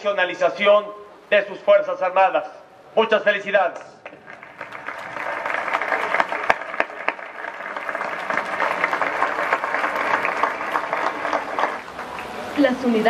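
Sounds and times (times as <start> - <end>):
crowd applauding: 4.0 - 12.6.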